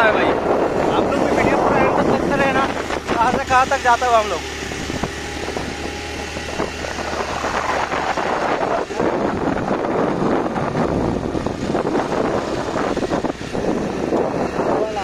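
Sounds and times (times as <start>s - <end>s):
motorcycle engine straining: 0.0s - 15.0s
wind on microphone: 0.0s - 15.0s.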